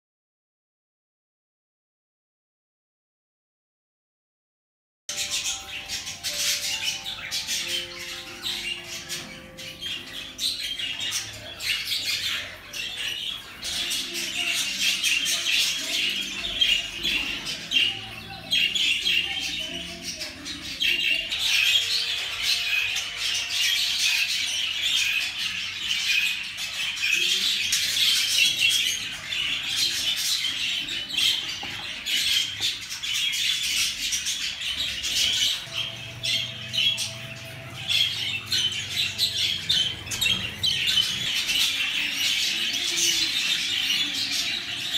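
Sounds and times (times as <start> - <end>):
budgerigars chirping and squawking: 5.1 - 44.9.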